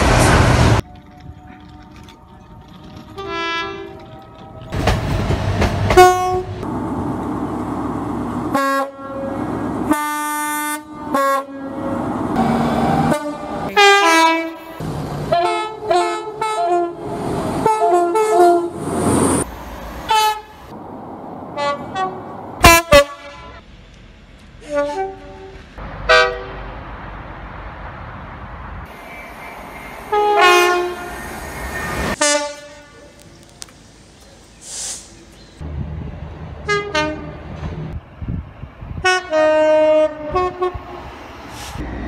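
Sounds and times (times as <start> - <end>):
trains passing: 0.0 - 42.0
two-tone train horn blasts: 5.9 - 6.7, 8.5 - 18.8, 21.6 - 23.6, 24.6 - 26.7, 30.1 - 31.2, 32.1 - 33.1, 36.6 - 37.5, 39.0 - 41.0.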